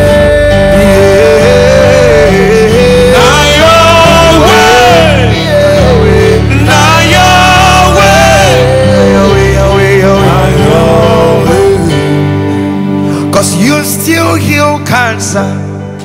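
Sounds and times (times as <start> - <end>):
men singing: 0.0 - 12.2
electronic keyboard chords: 0.0 - 16.0.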